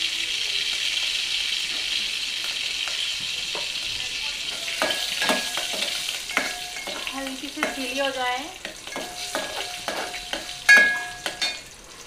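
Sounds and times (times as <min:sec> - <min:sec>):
spices sizzling in hot oil: 0:00.0 - 0:12.0
metal spoon clinking against pot: 0:04.5 - 0:11.7.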